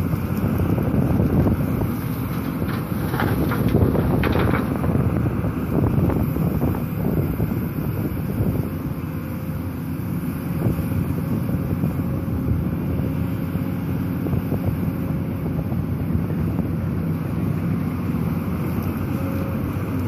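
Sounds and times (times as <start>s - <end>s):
wind buffeting microphone: 0.0s - 9.0s
excavator diesel engine working: 0.0s - 20.0s.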